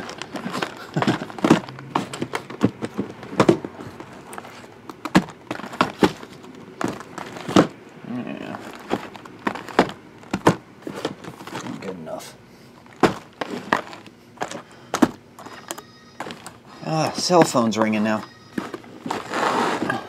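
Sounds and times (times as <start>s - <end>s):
cardboard boxes knocking on table: 0.5s - 3.7s, 8.9s - 11.3s, 13.0s - 15.2s.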